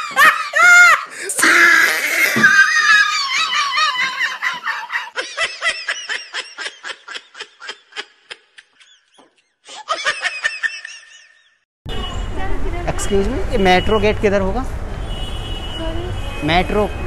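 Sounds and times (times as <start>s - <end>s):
high-pitched laughter: 0.0s - 11.6s.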